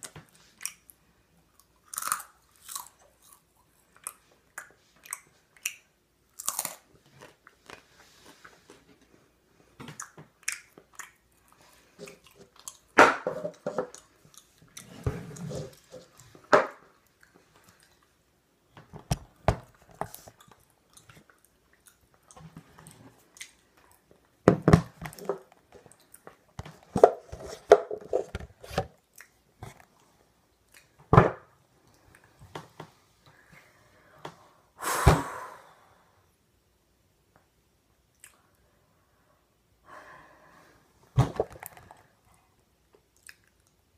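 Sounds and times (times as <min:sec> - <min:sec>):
person chewing crunchy food: 0:01.6 - 0:08.8, 0:10.0 - 0:12.9.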